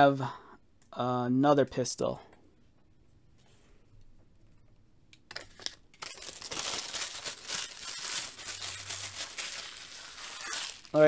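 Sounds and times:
packaging crinkling and rustling: 5.3 - 11.0.

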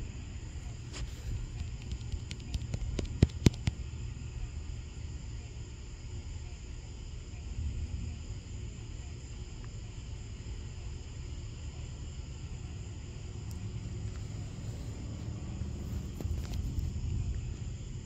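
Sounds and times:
insects chirping: 0.0 - 18.0
low rumble: 6.8 - 18.0.

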